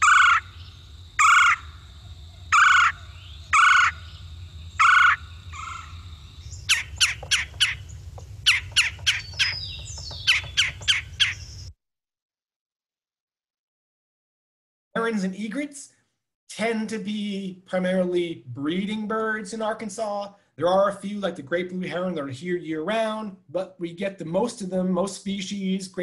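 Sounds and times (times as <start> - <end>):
woodpecker calling: 0.0 - 11.7.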